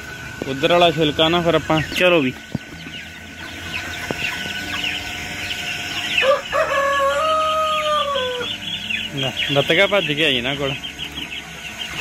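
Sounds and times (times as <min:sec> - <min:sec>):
chicks peeping: 0:00.0 - 0:12.0
rooster crowing: 0:06.1 - 0:08.6.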